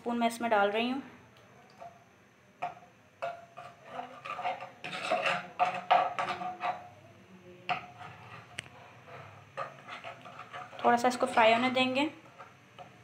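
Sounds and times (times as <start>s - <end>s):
metal spoon scraping a pan: 2.6s - 7.0s, 7.7s - 13.0s.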